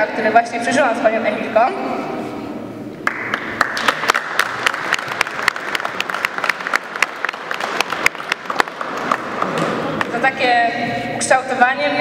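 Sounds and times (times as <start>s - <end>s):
audience applause: 3.0s - 9.7s
sharp single claps: 3.0s - 10.2s.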